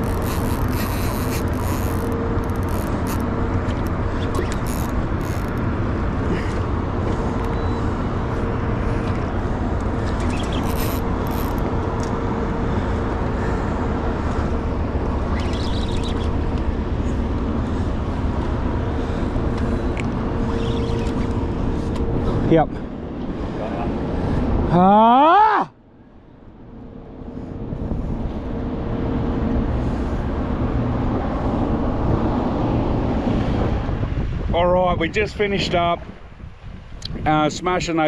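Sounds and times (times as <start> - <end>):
outboard motor running: 0.0 - 23.0
wind: 0.0 - 38.0.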